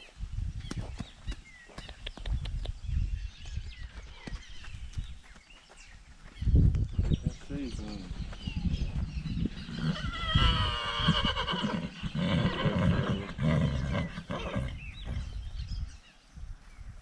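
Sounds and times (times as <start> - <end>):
horse whinnying: 9.6 - 14.9.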